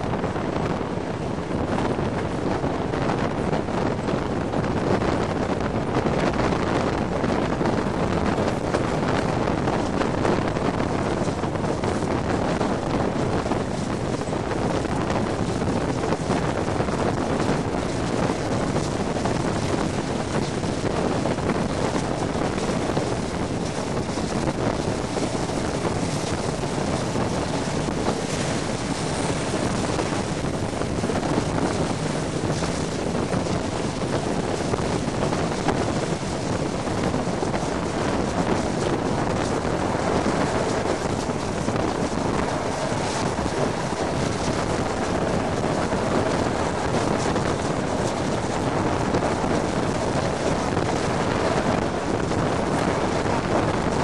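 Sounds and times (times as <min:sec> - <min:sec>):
train running rumble: 0:00.0 - 0:54.0
wind buffeting microphone: 0:00.0 - 0:54.0.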